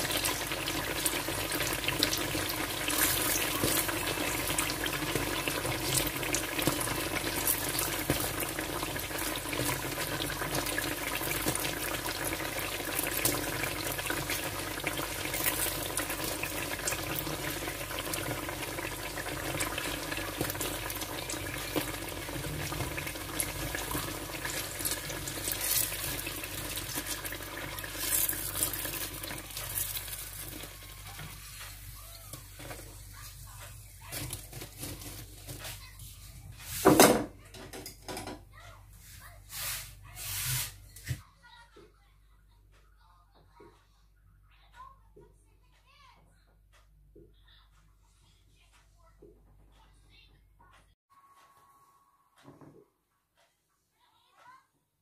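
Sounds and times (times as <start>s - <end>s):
food sizzling in hot oil: 0.0s - 35.5s.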